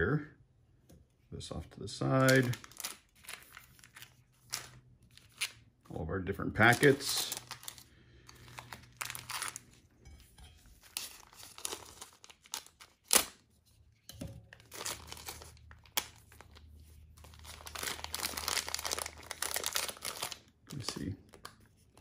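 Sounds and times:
plastic packaging crinkling: 0:02.0 - 0:05.7, 0:06.6 - 0:09.9, 0:10.8 - 0:13.4, 0:14.4 - 0:22.0.

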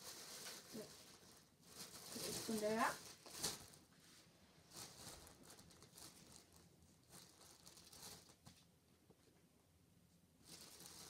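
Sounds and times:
plastic bag crinkling: 0:00.0 - 0:03.9, 0:04.6 - 0:08.6, 0:10.4 - 0:11.0.

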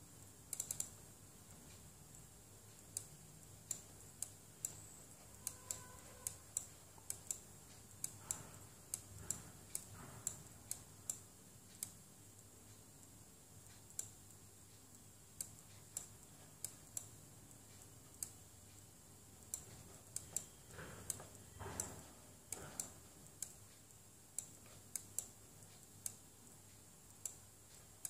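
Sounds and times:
computer control clicks: 0:00.5 - 0:01.0, 0:02.9 - 0:11.2.

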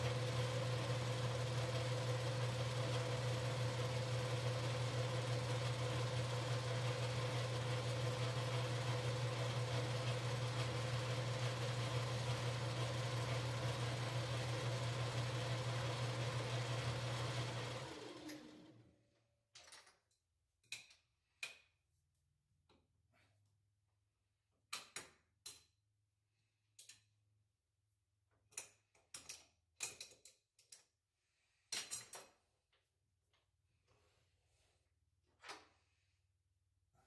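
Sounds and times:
lathe motor humming: 0:00.0 - 0:18.8.

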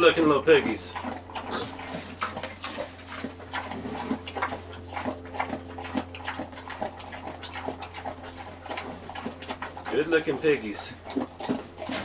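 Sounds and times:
pig chomping feed: 0:00.0 - 0:12.0.

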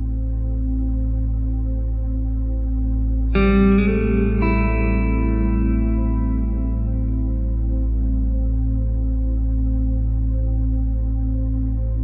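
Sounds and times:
ambient music drone: 0:00.0 - 0:12.0
plucked guitar chord with echo: 0:03.3 - 0:07.8.

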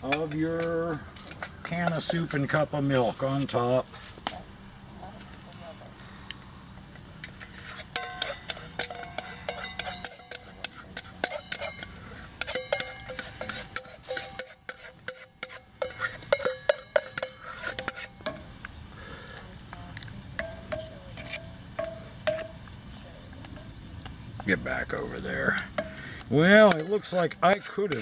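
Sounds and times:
spoon scraping metal saucepan: 0:00.0 - 0:03.5, 0:07.2 - 0:18.5, 0:20.0 - 0:22.7, 0:25.3 - 0:28.0.

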